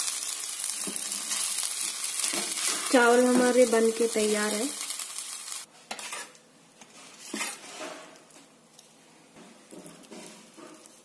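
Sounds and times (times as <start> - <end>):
spatula scraping steel pan: 5.9 - 6.4, 7.2 - 8.0.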